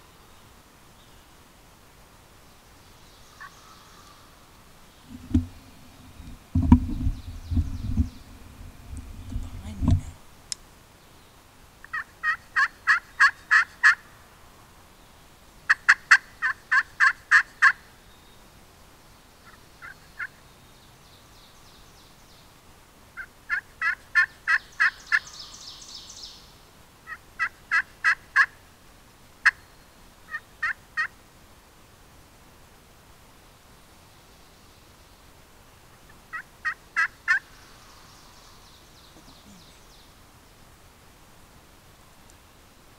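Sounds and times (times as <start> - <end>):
turkey yelping: 11.9 - 14.0, 36.3 - 37.5.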